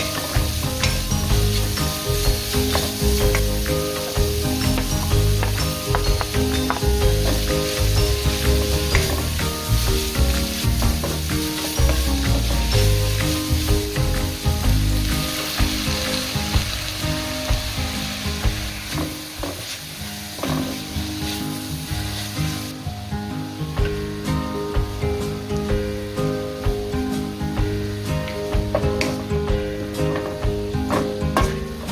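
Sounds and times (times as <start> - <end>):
wooden spatula scraping a pan: 0.0 - 22.7
vegetables sizzling in a pan: 0.0 - 31.9.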